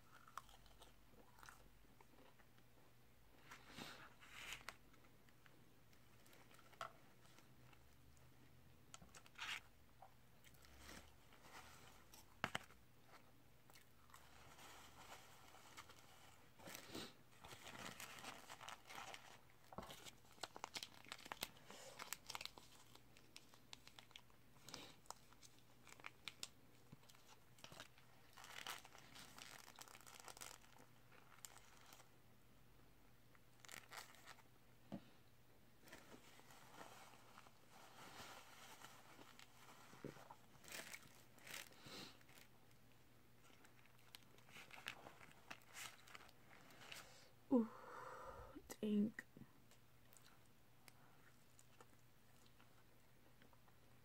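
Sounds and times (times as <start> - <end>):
person chewing food: 0.0 - 2.7
paper wrapper crinkling: 14.1 - 32.1, 33.3 - 34.5, 35.8 - 42.8, 43.4 - 47.0.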